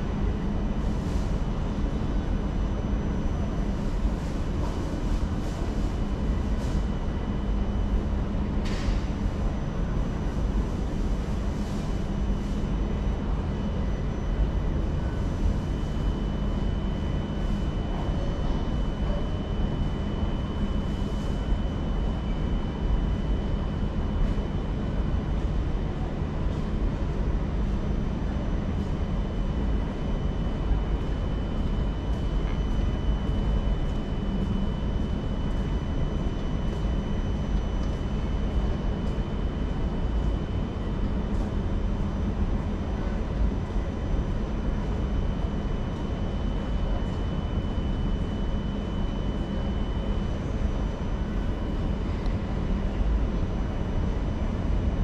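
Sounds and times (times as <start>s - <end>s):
thin steady whine: 0.0s - 55.0s.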